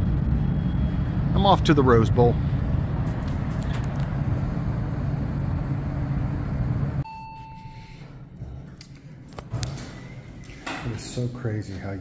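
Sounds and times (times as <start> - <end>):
city traffic rumble: 0.0 - 7.0
elevator chime: 7.0 - 8.1.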